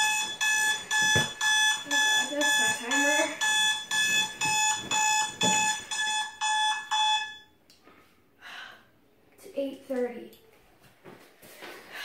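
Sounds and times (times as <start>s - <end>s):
phone alarm beeping: 0.0s - 7.6s.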